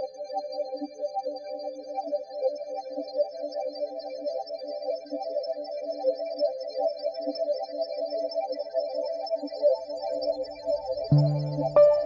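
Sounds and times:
deep held note: 11.1s - 12.0s
repeating high-pitched music figure: 11.1s - 12.0s.

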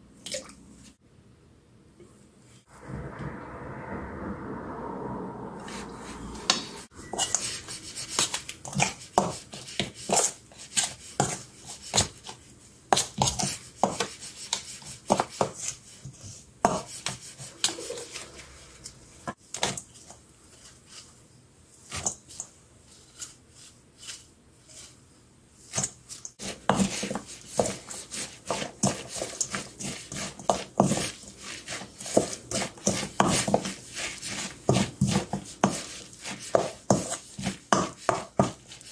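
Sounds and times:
metal spoon scraping steel bowl: 5.6s - 9.0s, 16.7s - 19.1s
wooden spoon tossing food: 25.7s - 38.9s.

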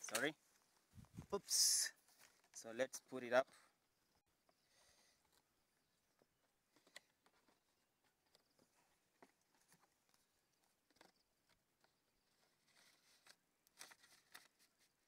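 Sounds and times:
paper rustling and crinkling: 6.7s - 15.0s.

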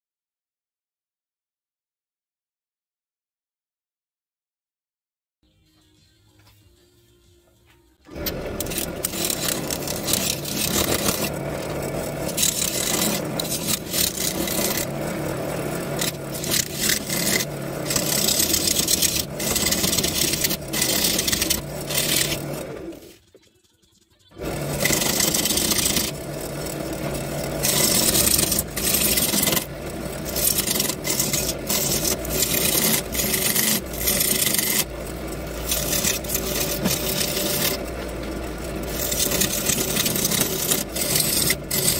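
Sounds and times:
lathe motor humming: 8.1s - 23.2s, 24.4s - 41.9s
turning tool scraping wood: 8.1s - 23.3s, 24.3s - 41.9s.

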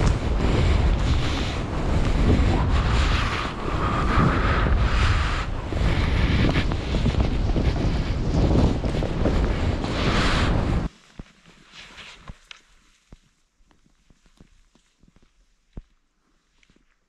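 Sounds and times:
wind buffeting microphone: 0.0s - 10.9s
skis hissing through snow: 0.0s - 11.0s, 11.6s - 13.0s.

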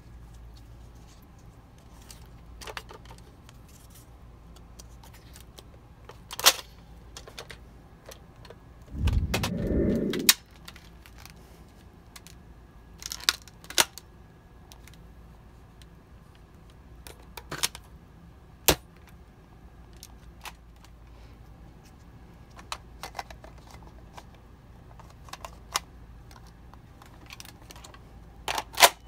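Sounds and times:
dull low rumble: 8.9s - 10.4s.

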